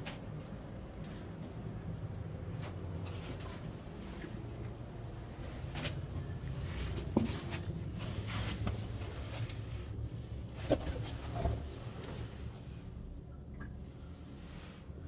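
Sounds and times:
footsteps and scuffs on cave floor: 5.4 - 9.7.

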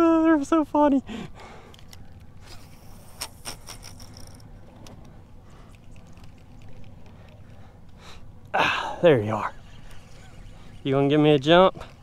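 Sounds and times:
fishing reel clicking and creaking: 1.7 - 5.1, 9.8 - 12.0
thin high whine: 8.6 - 12.0.

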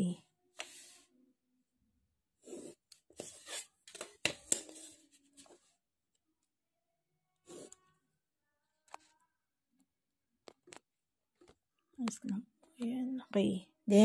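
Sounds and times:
pencil scratching on paper: 2.4 - 5.7, 7.4 - 7.9.

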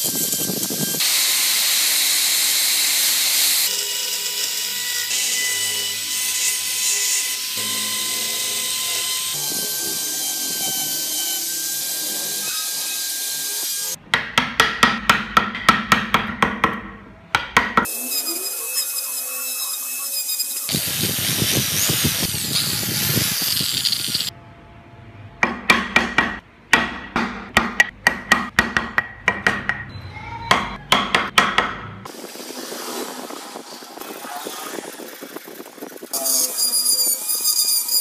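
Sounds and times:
power tool whining: 17.9 - 24.3
hammer tapping chisel into wood: 25.4 - 29.9.

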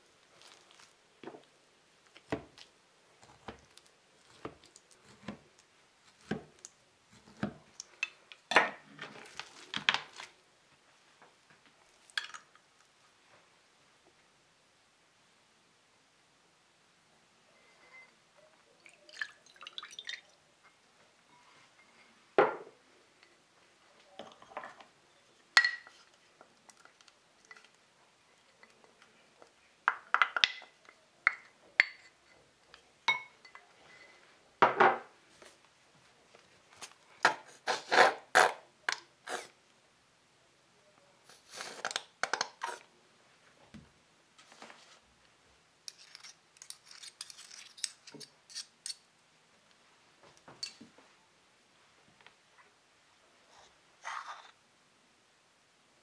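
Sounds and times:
spoons scraping and tapping: 45.9 - 49.0.

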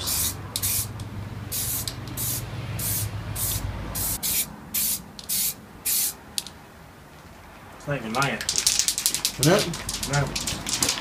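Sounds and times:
spray paint can hissing: 0.0 - 6.5.

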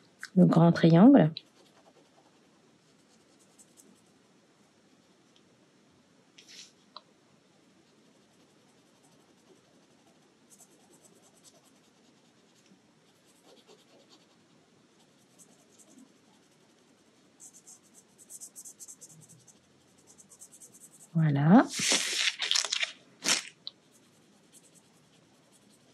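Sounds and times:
pen scratching on paper: 1.4 - 4.1, 7.8 - 22.0, 23.8 - 25.9.

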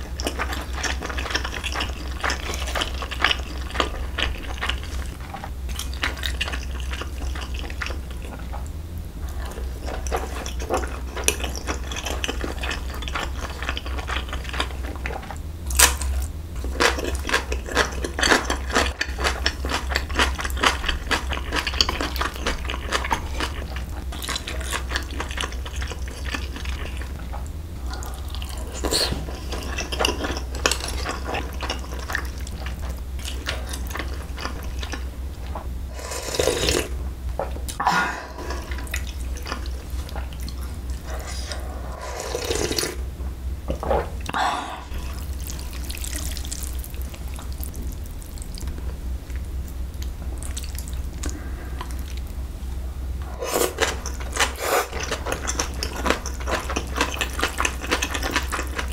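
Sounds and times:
steady low hum: 0.0 - 58.9
chewing: 0.1 - 16.0, 16.6 - 35.6, 37.7 - 43.0, 44.2 - 52.4, 53.2 - 58.9.

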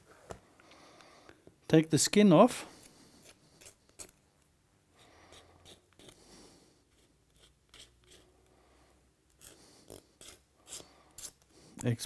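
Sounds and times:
knife scraping bones: 5.3 - 6.2, 6.9 - 8.3, 9.3 - 11.4.

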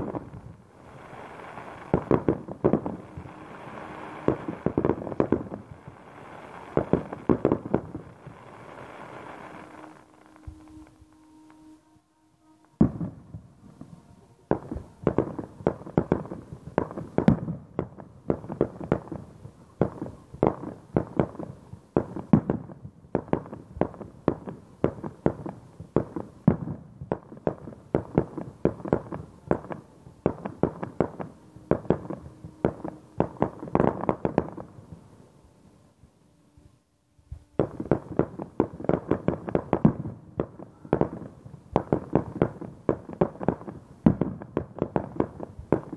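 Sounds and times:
crackling bangs: 0.0 - 11.8, 12.5 - 35.1.

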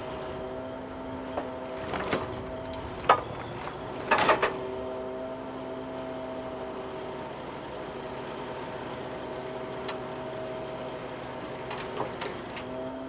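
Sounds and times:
log loader machine hum: 0.0 - 13.0
logs knocking and clunking: 1.3 - 4.6.

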